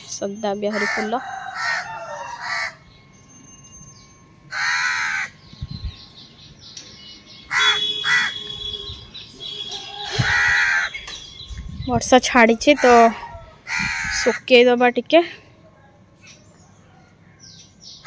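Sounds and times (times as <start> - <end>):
crows cawing: 0.7 - 2.9, 4.5 - 5.4, 7.5 - 11.1, 12.6 - 14.5.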